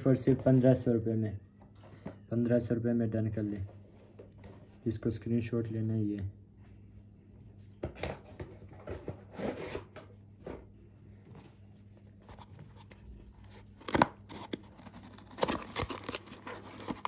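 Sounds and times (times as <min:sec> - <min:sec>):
cardboard scraping and rubbing: 0:11.8 - 0:17.0
cardboard tearing: 0:12.7 - 0:17.0.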